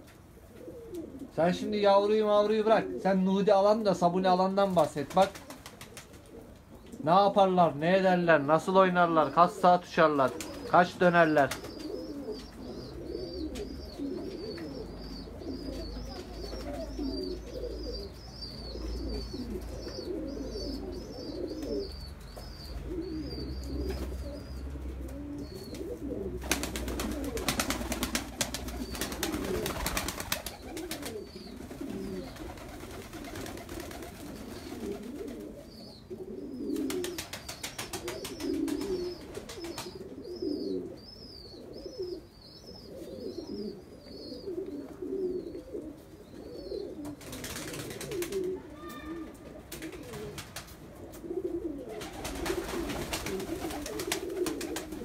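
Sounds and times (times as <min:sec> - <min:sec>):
pigeons cooing: 0:00.0 - 0:55.0.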